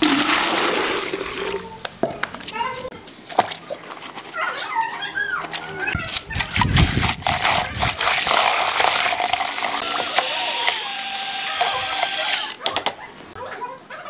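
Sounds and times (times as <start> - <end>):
electric drill mixer running: 7.2 - 12.6.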